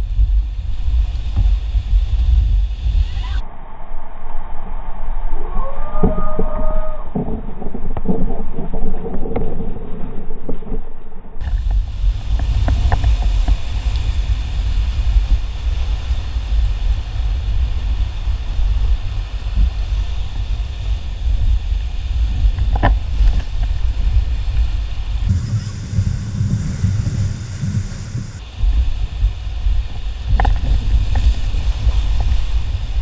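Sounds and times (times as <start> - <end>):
wind buffeting microphone: 0.0 - 3.4, 11.4 - 33.0
whitewater rushing and splashing: 11.4 - 33.0.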